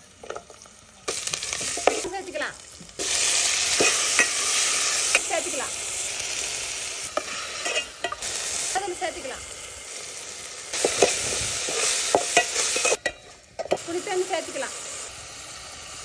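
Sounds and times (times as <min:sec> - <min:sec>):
food sizzling in hot oil: 0:00.0 - 0:16.0
ladle scraping a metal pot: 0:07.1 - 0:08.3.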